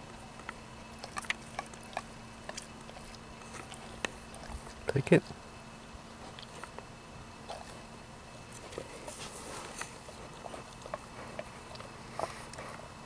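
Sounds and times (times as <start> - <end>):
puppy sniffing: 0.0 - 13.0
puppy wet mouth clicks: 0.1 - 5.4, 6.2 - 6.9.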